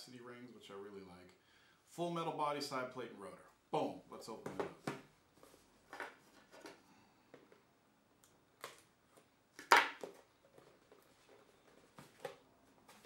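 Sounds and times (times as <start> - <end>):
cardboard and packaging rustling: 10.0 - 13.0.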